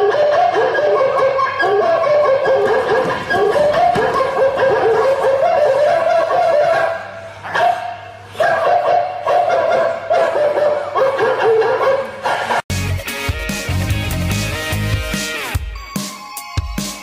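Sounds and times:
music: 12.7 - 17.0.

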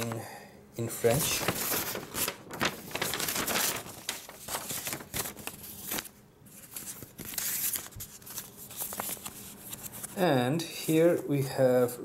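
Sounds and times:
paper rustling and crinkling: 0.9 - 10.2.

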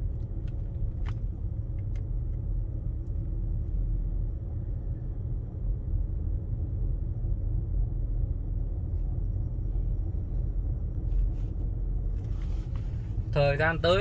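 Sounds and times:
car engine and tyres rumbling: 0.0 - 14.0.

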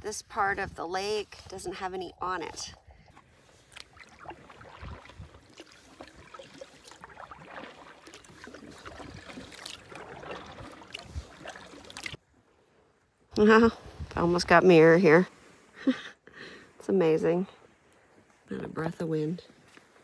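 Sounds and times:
water lapping against hull: 0.2 - 12.8
paddle dipping and splashing: 1.5 - 12.7.

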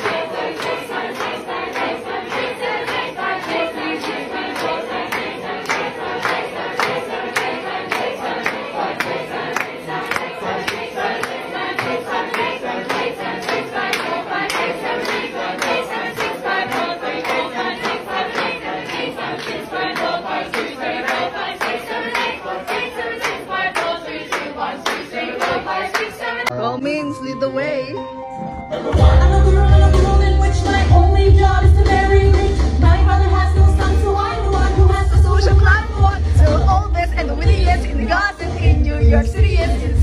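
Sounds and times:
hand claps: 0.0 - 26.5
young voices singing a round: 0.0 - 26.6, 28.7 - 40.0.

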